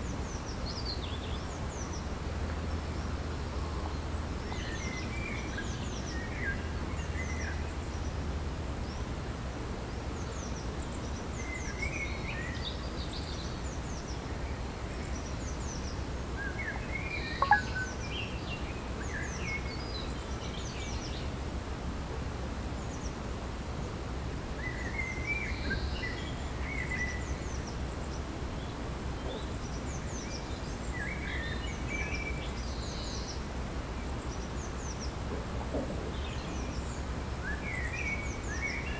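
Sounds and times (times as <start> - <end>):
small birds chirping and trilling: 9.8 - 21.4.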